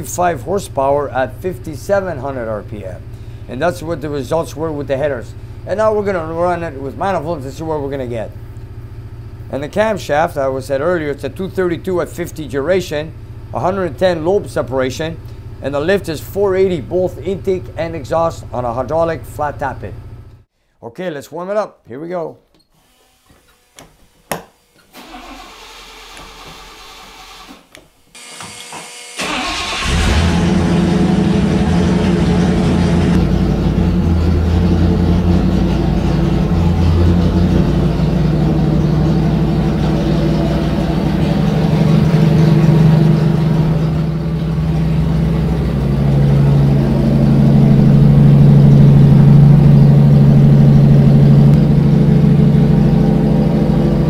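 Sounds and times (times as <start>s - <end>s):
engine starting and fast idling: 24.9s - 27.6s, 29.2s - 54.0s.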